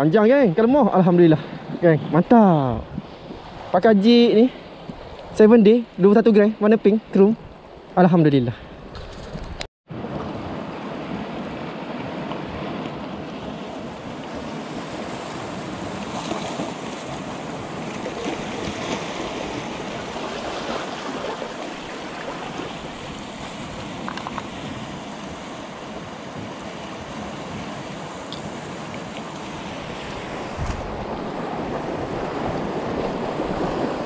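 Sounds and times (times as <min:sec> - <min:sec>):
wind on microphone: 0:01.5 - 0:03.8, 0:08.6 - 0:34.0
sea waves washing: 0:09.9 - 0:34.0.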